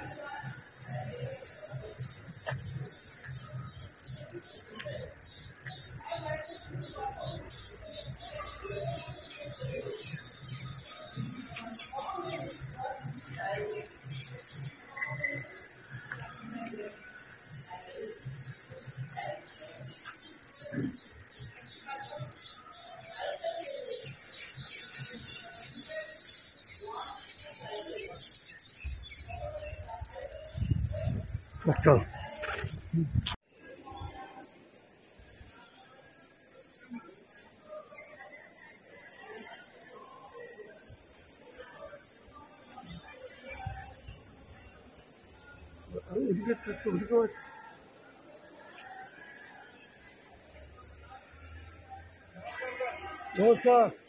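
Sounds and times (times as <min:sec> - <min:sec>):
cicada buzzing: 0:00.0 - 0:33.4.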